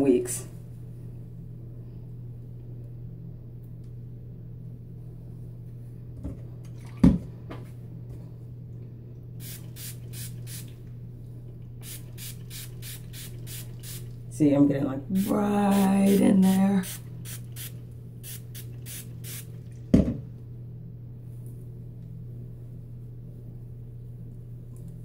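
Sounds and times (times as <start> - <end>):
spray bottle squirting: 9.4 - 10.7, 11.8 - 14.2, 15.2 - 19.5.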